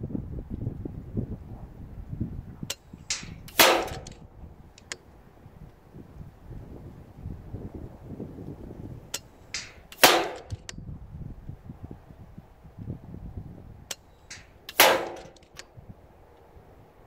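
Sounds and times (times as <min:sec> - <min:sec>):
air rifle shots: 0:02.7 - 0:04.2, 0:09.2 - 0:10.7, 0:14.3 - 0:15.6.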